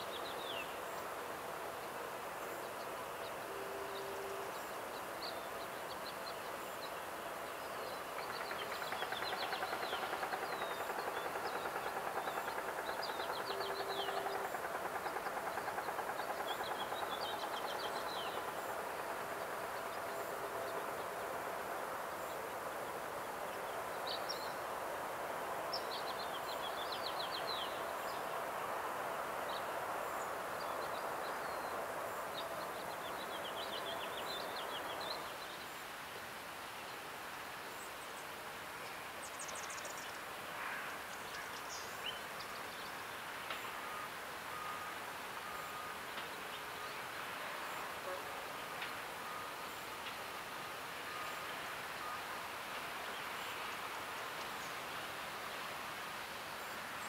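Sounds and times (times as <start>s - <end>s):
small birds chirping: 7.6s - 18.8s.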